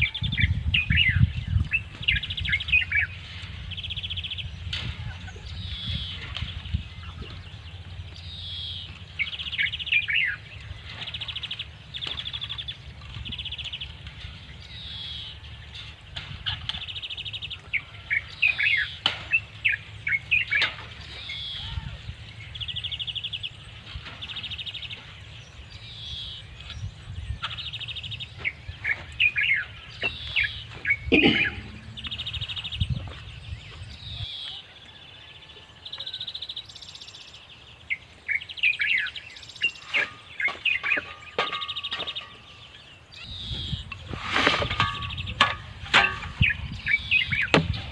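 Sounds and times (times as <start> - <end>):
songbirds singing: 0.0 - 47.9
low rumble: 30.7 - 34.3.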